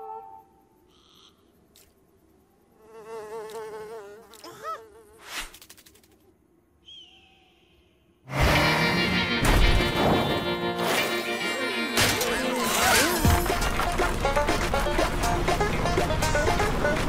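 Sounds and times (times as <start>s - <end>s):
cartoon insect buzz: 2.8s - 6.1s.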